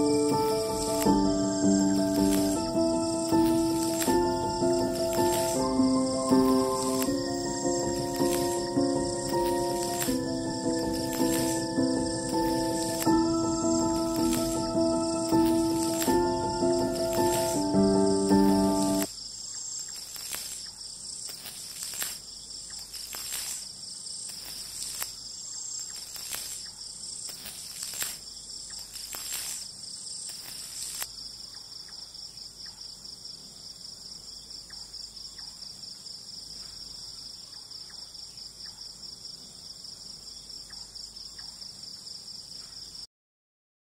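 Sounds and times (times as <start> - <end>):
crickets chirring: 0.0 - 43.1
clicks: 6.4 - 11.6, 12.3 - 14.7.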